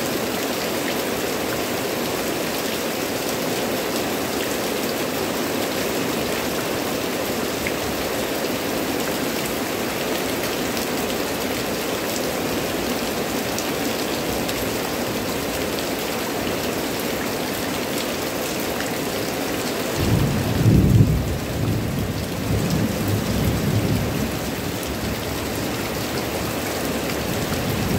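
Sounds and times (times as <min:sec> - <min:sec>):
heavy rain on leaves: 0:00.0 - 0:27.9.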